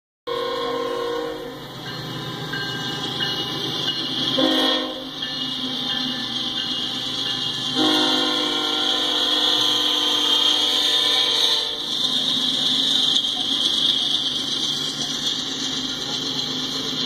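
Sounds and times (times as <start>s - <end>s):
train air horn: 0.3s - 1.6s, 4.4s - 5.2s, 7.7s - 11.9s
train rumbling: 0.3s - 17.0s.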